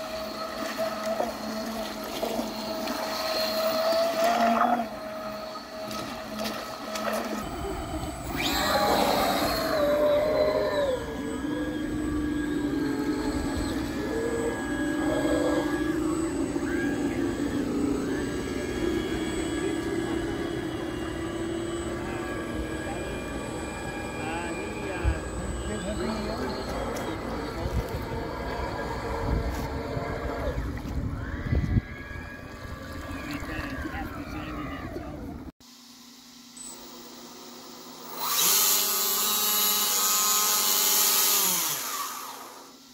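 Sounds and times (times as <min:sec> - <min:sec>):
model boat motors humming: 0:00.0 - 0:35.5, 0:36.4 - 0:42.9
faint voices: 0:07.4 - 0:35.5.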